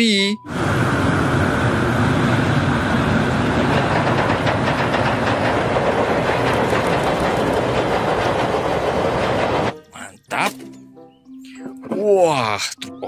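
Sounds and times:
steam train rumbling: 0:00.5 - 0:10.3
wheel clicks over rail joints: 0:03.3 - 0:10.8.

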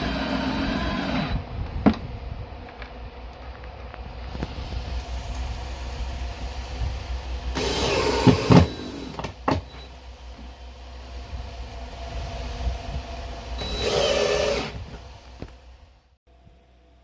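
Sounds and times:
cordless drill driving screws: 0:00.0 - 0:01.4, 0:07.5 - 0:09.3, 0:13.6 - 0:14.9.

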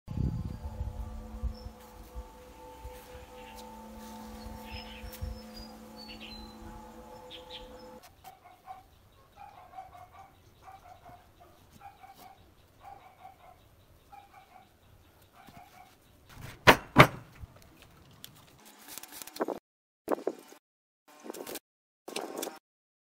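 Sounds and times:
held musical chord: 0:00.1 - 0:08.0.

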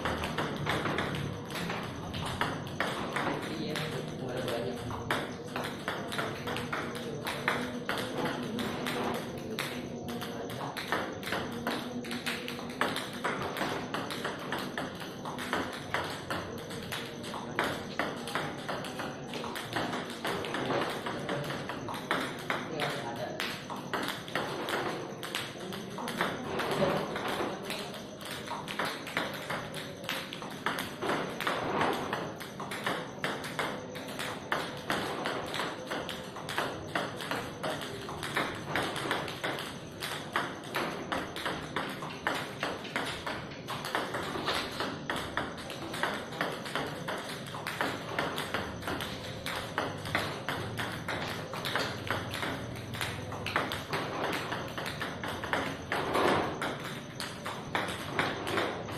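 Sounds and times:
ball ticking on tabletop: 0:00.0 - 0:58.9.

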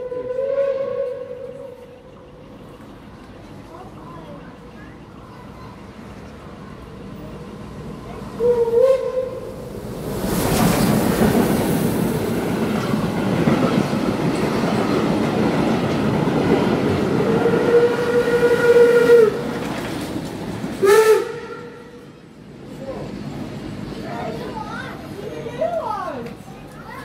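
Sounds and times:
steam train whistle: 0:00.0 - 0:01.9, 0:08.4 - 0:09.5, 0:17.2 - 0:19.5, 0:20.8 - 0:22.0
steam train wheels rumbling: 0:00.0 - 0:27.0.

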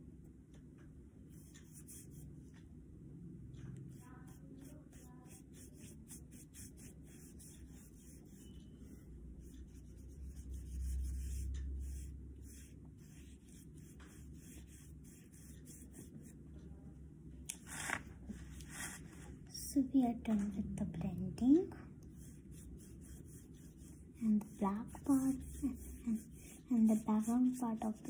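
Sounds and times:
paintbrush rubbing on paper: 0:01.3 - 0:02.6, 0:03.9 - 0:16.4, 0:17.7 - 0:19.4, 0:22.1 - 0:28.0.

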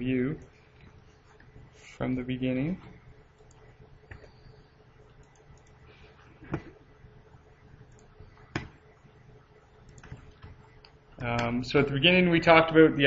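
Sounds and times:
faint steady hum: 0:00.0 - 0:13.0
sharp computer clicks: 0:05.2 - 0:05.8, 0:09.8 - 0:11.6.

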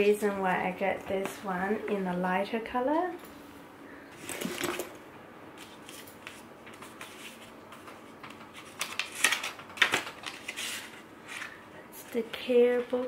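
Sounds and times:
paper booklet rustling: 0:05.6 - 0:13.0.

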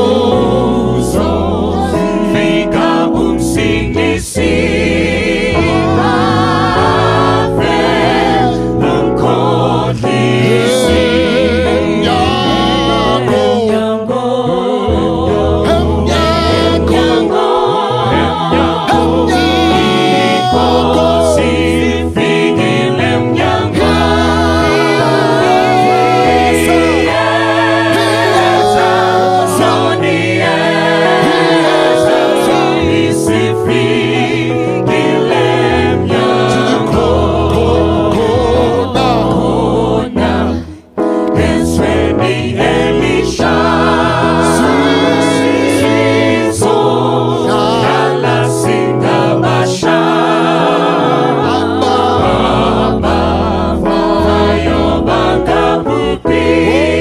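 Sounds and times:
deep bass voice: 0:00.0 - 0:04.6, 0:05.3 - 0:13.9, 0:14.5 - 0:22.1, 0:23.2 - 0:30.6, 0:35.8 - 0:40.6
vocal group singing in harmony: 0:00.0 - 0:57.0.

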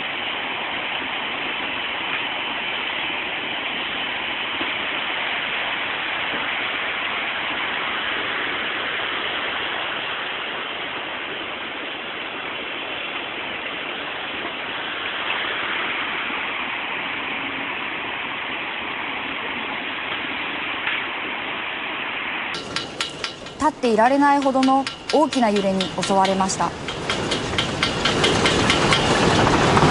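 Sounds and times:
rushing floodwater: 0:00.0 - 0:29.9.

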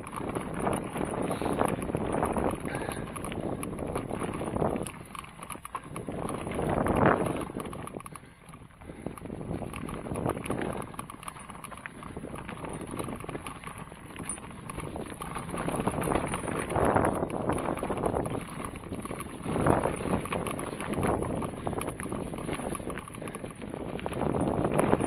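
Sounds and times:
rattling and bumping on dirt trail: 0:00.0 - 0:25.0
wind on microphone: 0:00.0 - 0:25.0.

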